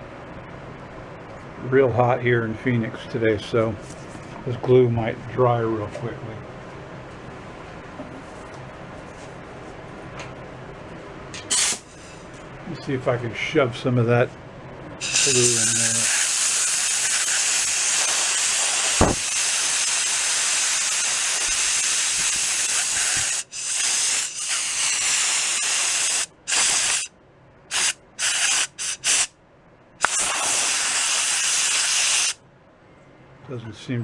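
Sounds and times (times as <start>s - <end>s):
compressed air blow gun hissing: 15.0s - 27.1s, 27.7s - 29.3s, 30.0s - 32.4s.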